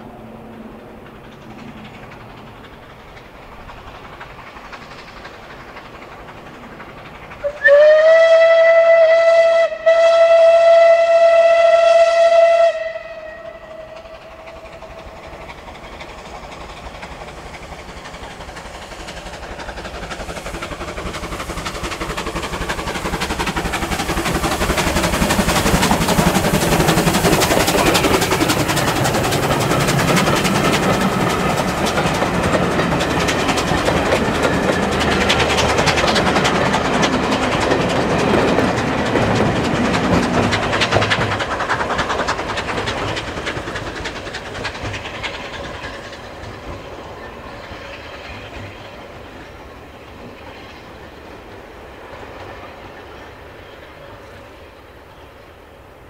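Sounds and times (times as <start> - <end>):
train running noise: 0.0 - 56.0
steam whistle blasts: 7.4 - 14.2.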